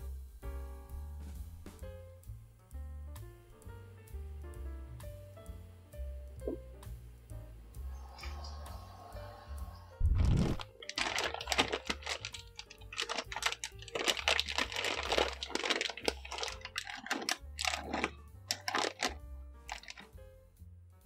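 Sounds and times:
background music: 0:00.0 - 0:21.0
plastic bag crinkling: 0:10.1 - 0:20.1.

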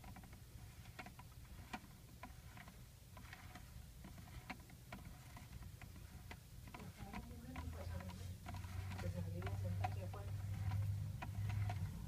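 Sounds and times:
turntable ticks and clicks: 0:00.0 - 0:12.0.

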